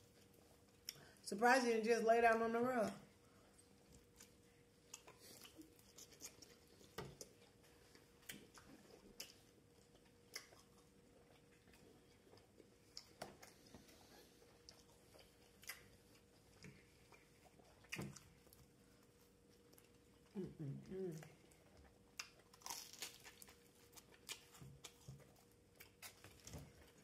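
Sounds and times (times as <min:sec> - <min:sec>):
faint steady hum: 0:00.0 - 0:27.0
chewing mouth clicks and smacks: 0:03.9 - 0:13.6.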